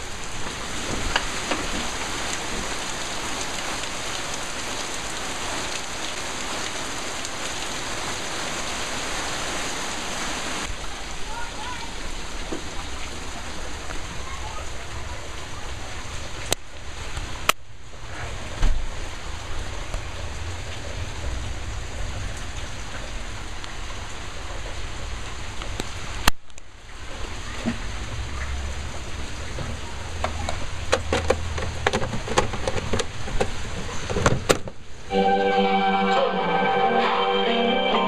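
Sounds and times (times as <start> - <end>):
sharp clicks and knocks: 29.6 - 34.8.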